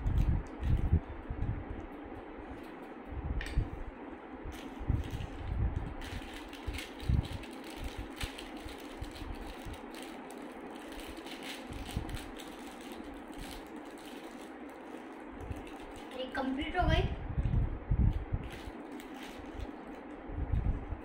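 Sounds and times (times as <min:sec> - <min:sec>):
plastic wrappers crinkling: 0:04.6 - 0:16.4, 0:18.4 - 0:20.2.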